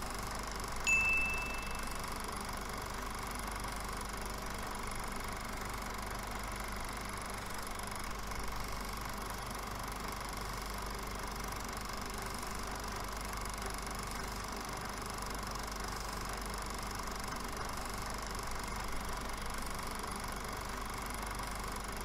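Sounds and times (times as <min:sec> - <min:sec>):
fixed tones: 0:00.9 - 0:02.2.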